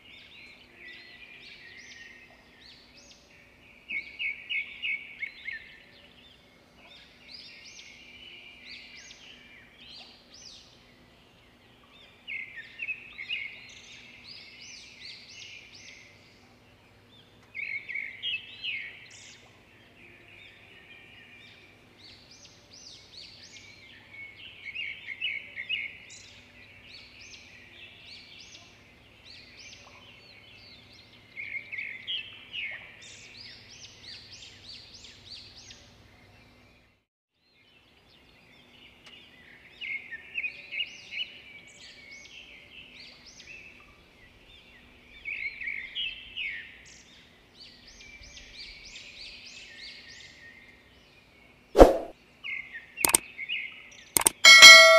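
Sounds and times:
bird chirping: 53.0s - 53.2s, 54.1s - 54.9s.

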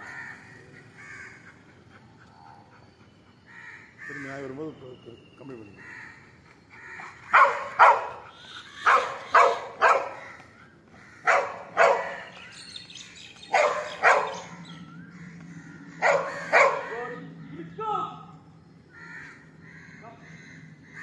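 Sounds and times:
dog barking: 7.3s - 8.2s, 8.8s - 10.2s, 11.2s - 12.3s, 13.5s - 14.6s, 16.0s - 17.0s.

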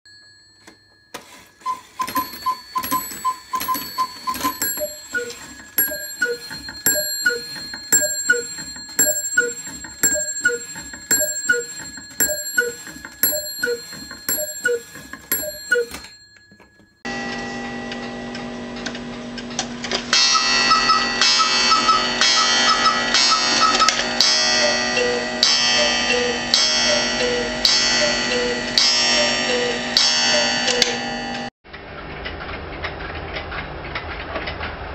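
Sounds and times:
clock mechanism clicks: 1.2s - 16.4s
cuckoo clock bellows whistle calls: 1.6s - 16.1s, 24.6s - 29.8s.

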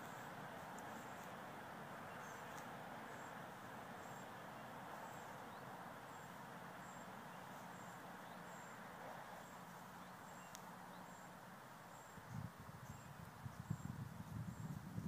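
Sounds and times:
small high ticks: 0.0s - 1.4s, 2.2s - 4.3s, 9.4s - 11.3s
outdoor background noise: 0.0s - 15.0s.

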